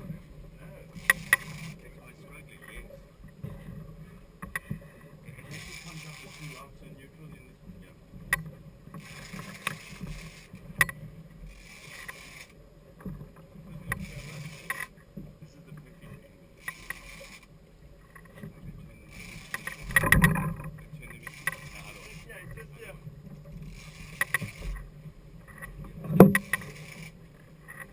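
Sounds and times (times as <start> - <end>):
outboard motors humming: 0.0 - 27.9
fishing reel hissing and clicking: 0.8 - 2.0, 5.4 - 6.7, 8.9 - 12.6, 13.9 - 15.0, 16.6 - 18.4, 19.0 - 22.6, 23.6 - 27.9.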